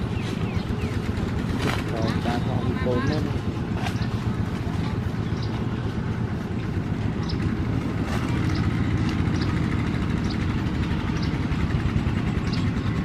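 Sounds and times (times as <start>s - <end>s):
diesel engine chugging: 0.0s - 13.0s.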